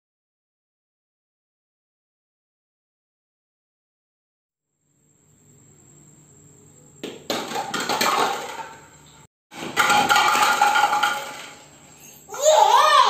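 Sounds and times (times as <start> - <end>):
plastic cups clattering on tiles: 7.0 - 9.0, 9.6 - 11.8
ball hitting plastic cups: 7.0 - 11.8.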